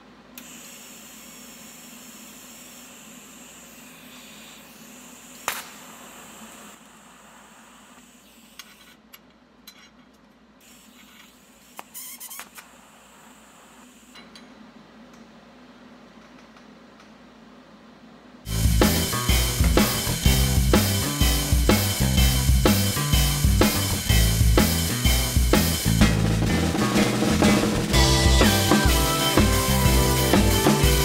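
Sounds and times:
welding arc crackling: 0.4 - 8.7, 18.5 - 31.0
welding arc hissing: 0.4 - 8.9, 10.6 - 14.2, 18.5 - 31.0
sharp snap: 5.4 - 5.9.

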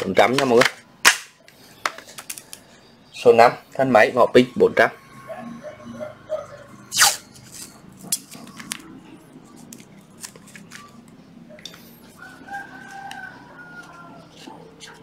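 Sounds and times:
rooster crowing: 12.0 - 14.5.

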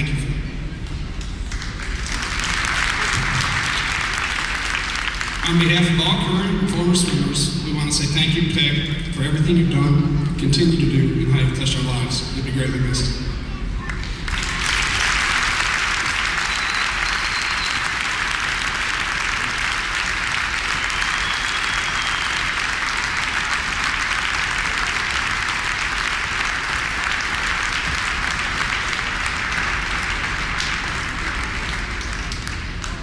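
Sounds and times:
crowd applauding: 1.4 - 5.7, 13.8 - 33.0.

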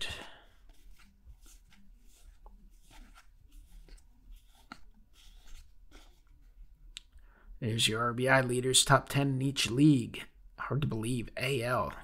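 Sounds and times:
cards being flipped through: 0.5 - 6.6.

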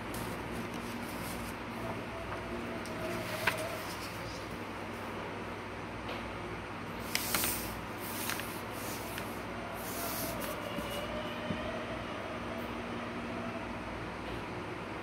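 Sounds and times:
paper rustling and sliding: 0.1 - 1.6, 2.3 - 4.6, 7.0 - 11.0.

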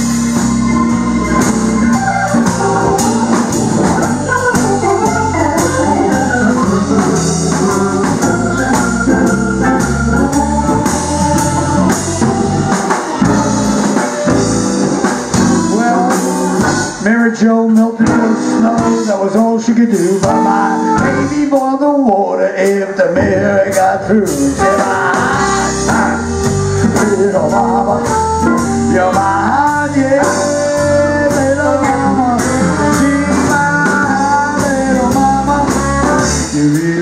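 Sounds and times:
electric bass: 0.0 - 21.7, 23.2 - 37.0
organ playing: 0.0 - 22.0, 22.6 - 37.0
drums: 0.0 - 37.0.

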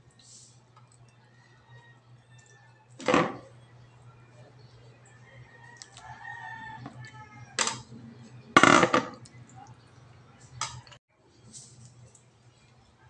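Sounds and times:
distant rooster crowing: 1.2 - 3.5, 5.1 - 8.0
plastic bowl handling: 8.6 - 9.2.

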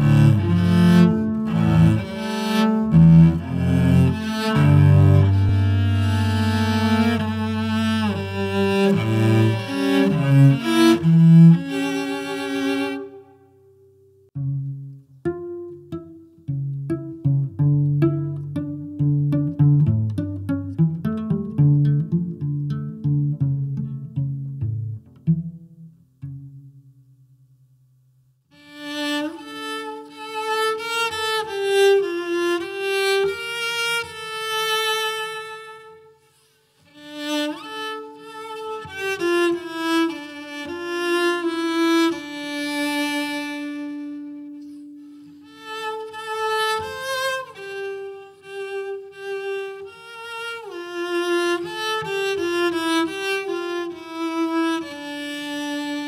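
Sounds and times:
violin melody with vibrato: 0.0 - 13.6, 28.6 - 56.0
low held string line: 0.0 - 27.7.

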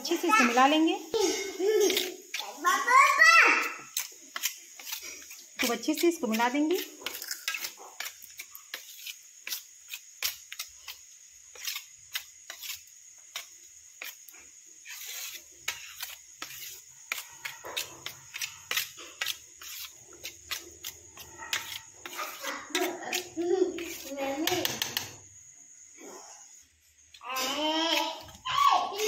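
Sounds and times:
metal spoon stirring batter in bowl: 3.7 - 25.2.

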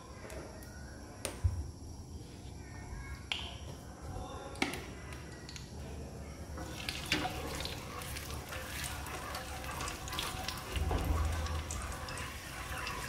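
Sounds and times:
oil crackling and sizzling: 6.5 - 13.0.

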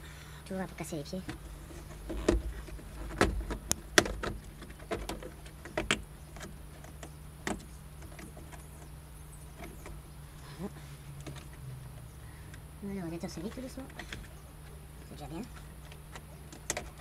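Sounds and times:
plastic trim clicks and knocks: 2.0 - 8.6.

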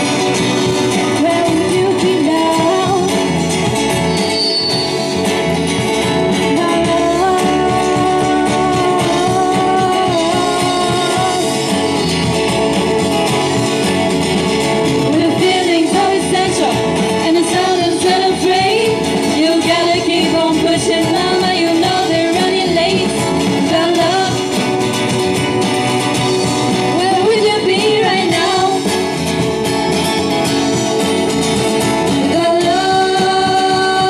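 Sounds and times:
acoustic guitars: 0.0 - 34.0
drum kit: 0.0 - 34.0
electric bass guitar: 0.0 - 34.0
women singing: 0.9 - 3.4, 6.3 - 12.0, 15.0 - 24.8, 26.9 - 29.0, 32.1 - 34.0.

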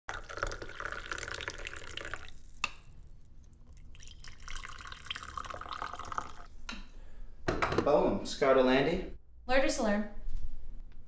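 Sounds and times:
coffee pouring into a mug: 0.1 - 6.5.

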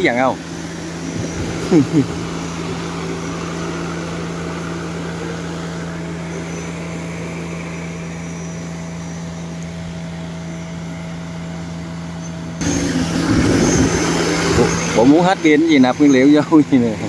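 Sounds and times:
rush of propeller downwash: 0.0 - 6.4, 12.6 - 17.0
drone propellers humming: 0.0 - 17.0.

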